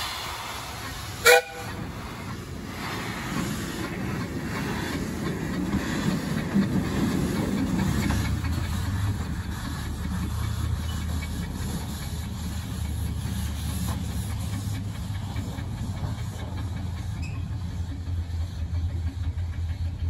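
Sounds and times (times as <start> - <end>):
steam hissing from cylinders: 0.0 - 20.0.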